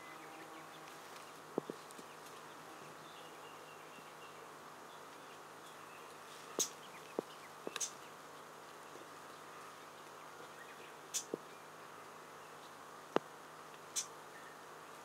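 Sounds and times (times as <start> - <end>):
insects buzzing: 0.0 - 15.0
bird harsh contact calls: 6.2 - 8.0.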